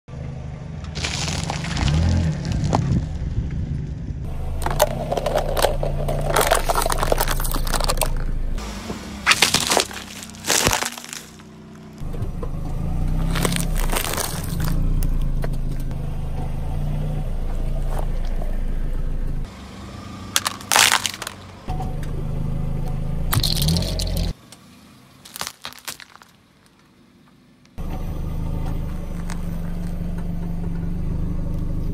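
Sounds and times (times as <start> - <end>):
tyre crushing plastic objects: 1.0 - 3.0, 4.6 - 8.3, 9.2 - 12.0, 13.2 - 14.8, 20.3 - 21.6, 23.4 - 24.3, 25.2 - 26.8.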